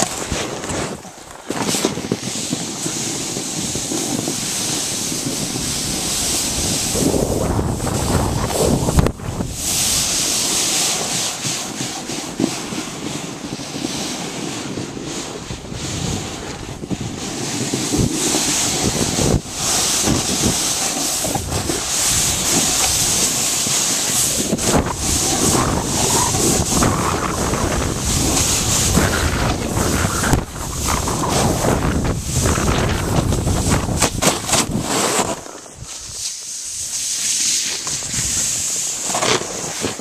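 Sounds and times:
wind buffeting microphone: 0.0 - 36.2
snowboard scraping on snow: 0.0 - 40.0.

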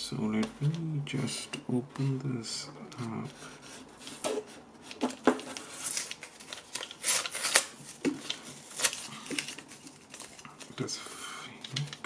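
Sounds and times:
plastic packaging crinkling: 4.0 - 11.0.

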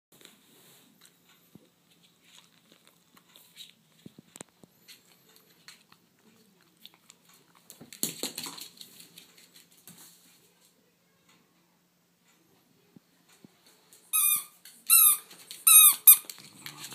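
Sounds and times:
dog claws clicking on wooden floor: 7.6 - 9.8.

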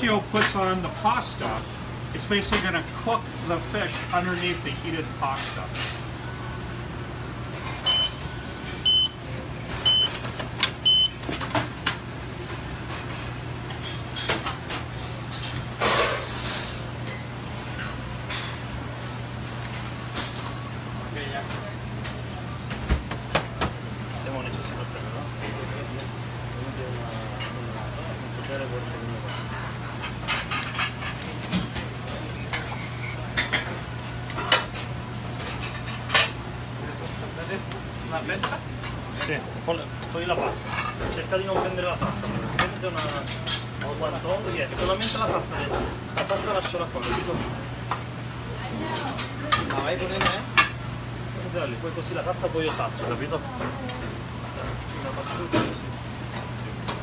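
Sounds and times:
utensils clinking on plates: 12.5 - 18.7, 27.0 - 36.4, 40.1 - 48.0.

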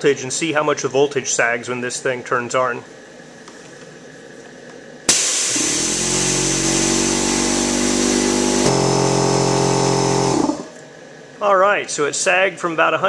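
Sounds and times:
air compressor running: 5.1 - 10.8.

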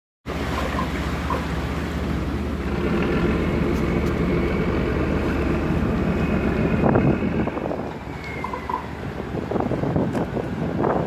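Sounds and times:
diesel engine throbbing: 0.3 - 9.9
propeller wash churning water: 0.3 - 11.0.

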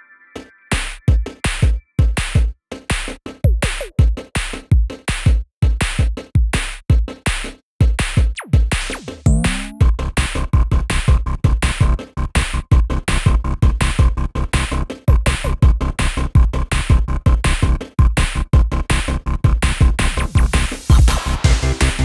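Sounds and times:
electronic music with drum-machine beat: 0.4 - 22.0.

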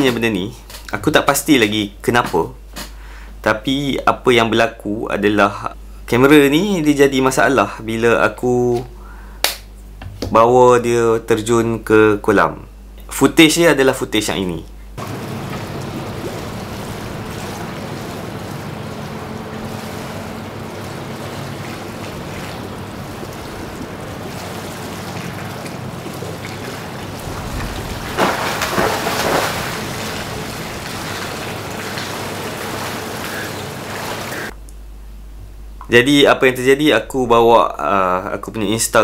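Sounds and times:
water noise: 15.0 - 34.6.

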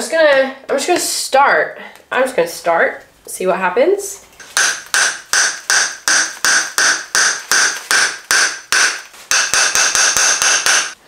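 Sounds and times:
hammer striking chisel on plaster: 4.4 - 11.0.

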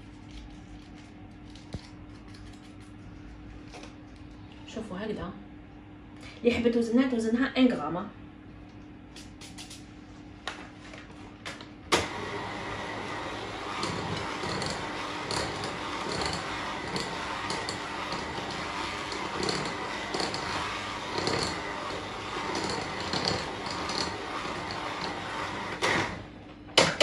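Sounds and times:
electric hand mixer whine: 12.0 - 26.3.

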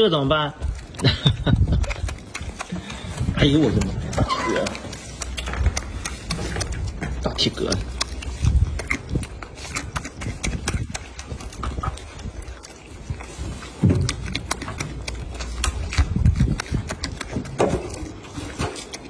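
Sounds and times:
monkey chewing: 0.0 - 19.0
dull low thumps: 5.2 - 18.1.

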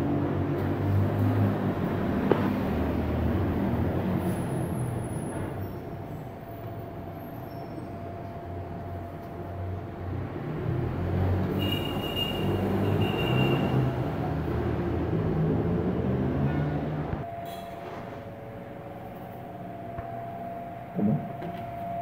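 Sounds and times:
heavy road traffic rumble: 0.0 - 22.0
thin high squeal: 17.3 - 18.0.

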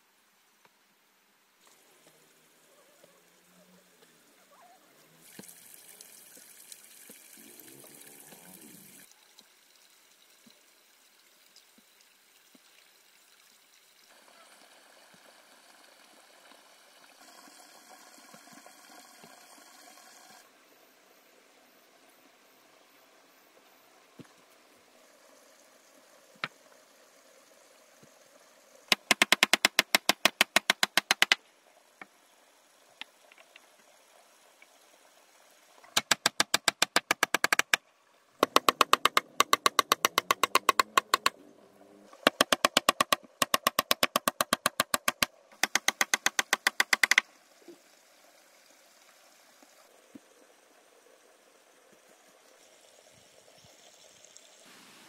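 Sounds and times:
hammer striking nails into wood: 28.9 - 31.4, 36.0 - 37.8, 38.4 - 41.3, 42.3 - 47.2
hammer taps: 38.4 - 41.3.

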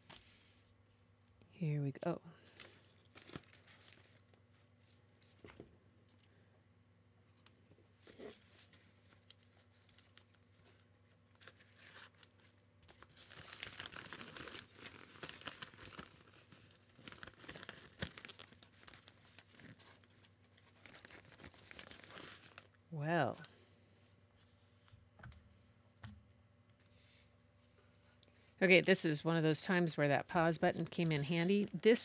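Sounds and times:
fabric rustling and crinkling: 8.0 - 22.7.

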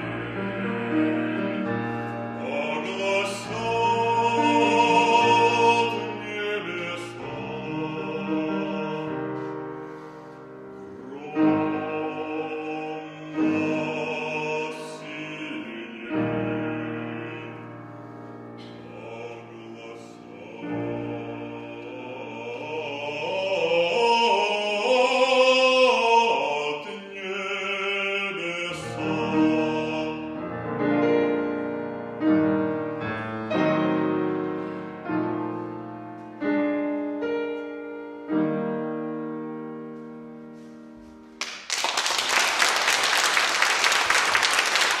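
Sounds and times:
man singing: 0.0 - 9.6, 11.0 - 17.8, 18.6 - 31.4
grand piano: 0.0 - 45.0
audience applause: 41.4 - 45.0.

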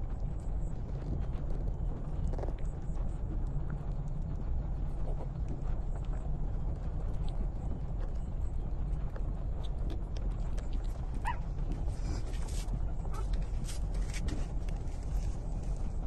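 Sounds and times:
steady low rumble: 0.0 - 16.0
puppies nursing: 4.7 - 16.0
puppy squeaking: 11.2 - 11.4.

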